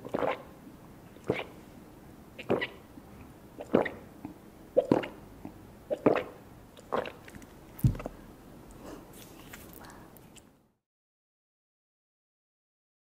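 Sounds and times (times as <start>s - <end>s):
gulping swallows: 0.0s - 0.5s, 1.2s - 1.6s, 4.8s - 7.4s.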